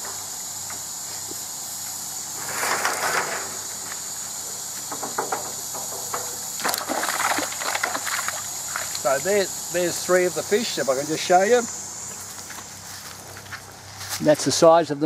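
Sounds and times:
water splashing and sloshing: 6.6s - 9.2s.

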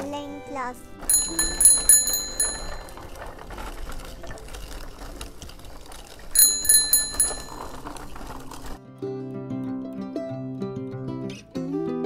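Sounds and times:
bicycle bell dings: 1.0s - 3.0s, 6.4s - 7.8s.

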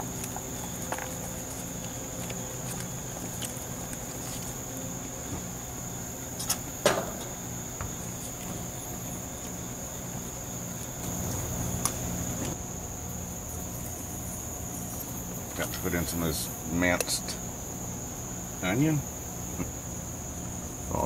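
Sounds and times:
high-pitched insect drone: 0.0s - 21.0s
sharp knocks: 6.8s - 8.6s.

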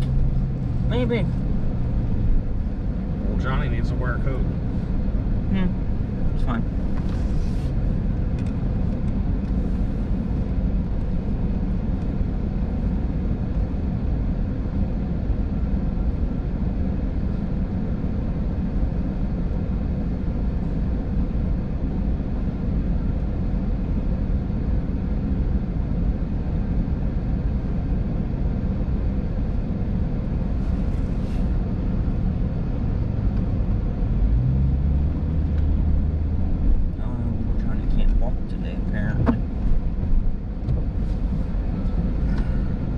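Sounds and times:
car engine rumble: 0.0s - 42.9s
car accelerating: 30.6s - 42.9s.

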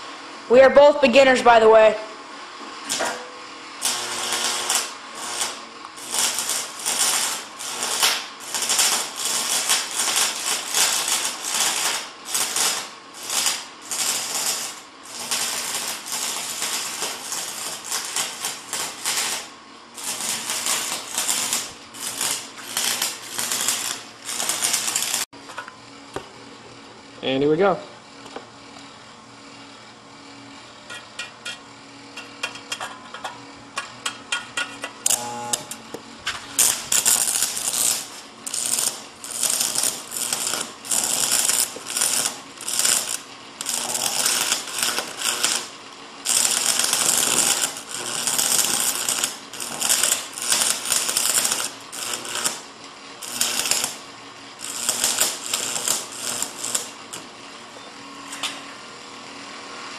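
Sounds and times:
welding arc crackling: 3.8s - 25.3s, 35.0s - 35.8s, 36.5s - 57.3s.

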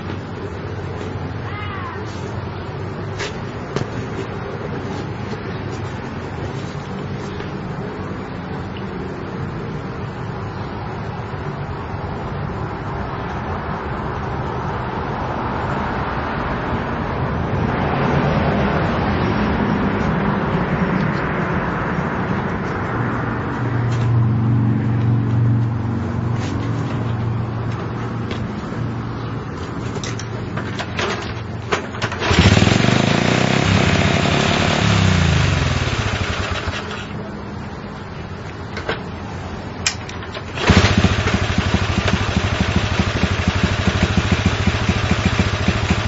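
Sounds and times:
small motorcycle engine revving: 32.0s - 37.2s, 40.4s - 46.0s.

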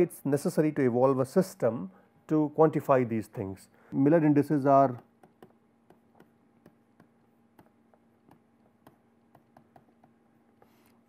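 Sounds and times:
faint steady hum: 0.0s - 11.0s
stylus tapping on tablet: 4.9s - 10.3s.

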